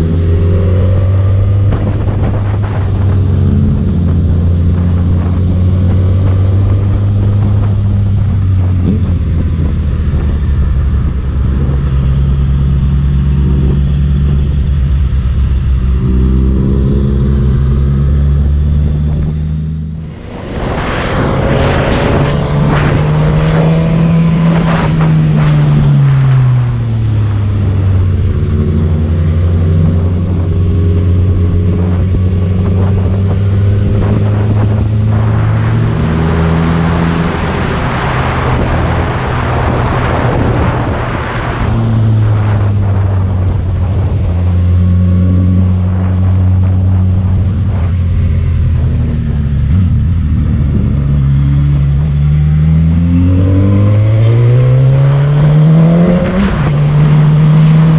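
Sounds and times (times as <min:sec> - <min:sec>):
motorcycle engine: 0:00.0 - 0:57.9
wind rushing: 0:00.0 - 0:57.9.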